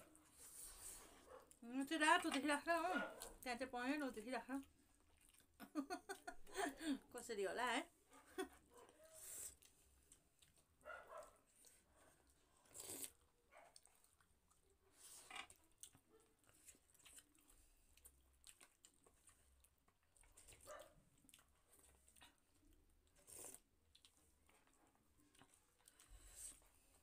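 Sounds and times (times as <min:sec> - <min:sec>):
chewing and slurping soup: 0:04.6 - 0:05.7, 0:08.8 - 0:27.0.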